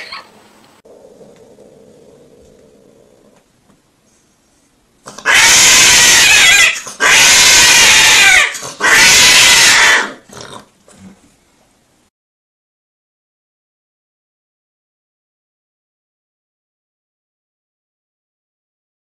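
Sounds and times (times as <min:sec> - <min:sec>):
cat yowling: 0:05.3 - 0:10.2.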